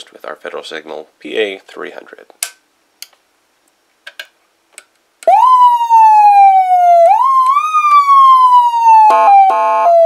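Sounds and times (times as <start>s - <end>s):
electronic siren: 5.3s - 10.0s.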